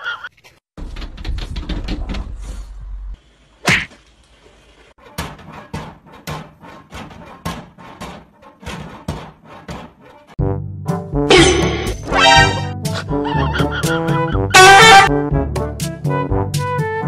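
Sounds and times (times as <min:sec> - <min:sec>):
music: 0:05.0 - 0:17.0.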